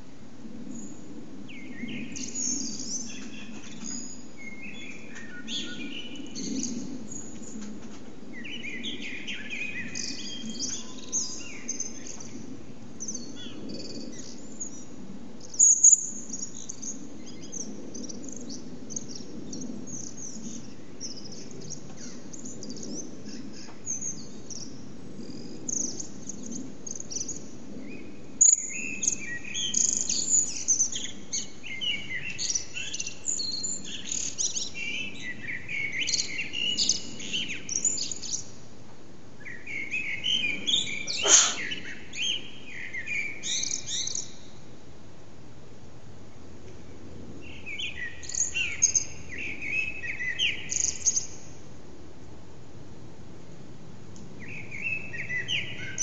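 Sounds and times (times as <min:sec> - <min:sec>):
blackbirds singing: 0:00.6 - 0:38.6, 0:39.4 - 0:44.7, 0:47.3 - 0:51.6, 0:54.4 - 0:56.0
loud high bird chirp: 0:39.5 - 0:44.4.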